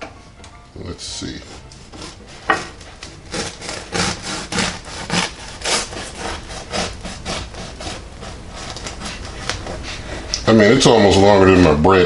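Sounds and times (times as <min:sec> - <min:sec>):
bread knife sawing crust: 0:01.2 - 0:10.3.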